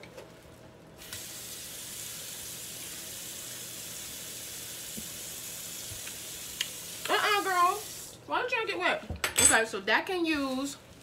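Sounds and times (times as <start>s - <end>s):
cabbage sizzling in a pan: 1.0s - 8.2s.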